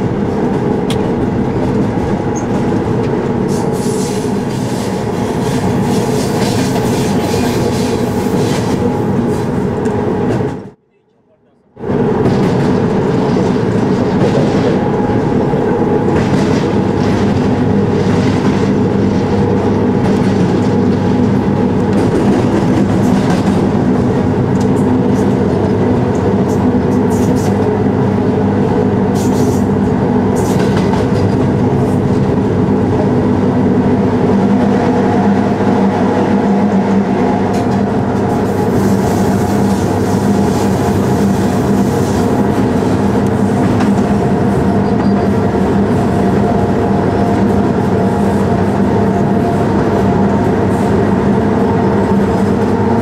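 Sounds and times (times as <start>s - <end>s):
electric locomotive hum: 0.0s - 53.0s
wheels rolling on rail: 11.8s - 53.0s.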